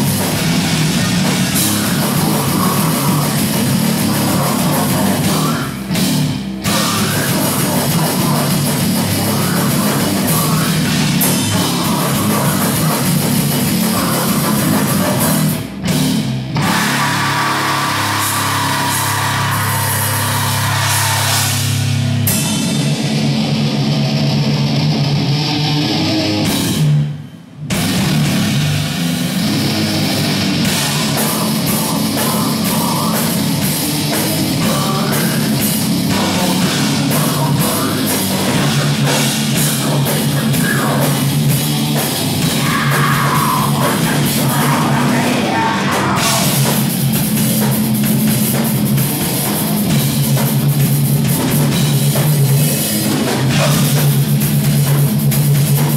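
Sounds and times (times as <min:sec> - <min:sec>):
distorted electric guitars: 0:00.0 - 0:55.9
drum kit: 0:00.0 - 0:55.9
vocals into a microphone: 0:01.4 - 0:05.9, 0:06.6 - 0:15.6, 0:16.6 - 0:21.8, 0:30.6 - 0:46.9, 0:52.7 - 0:54.1.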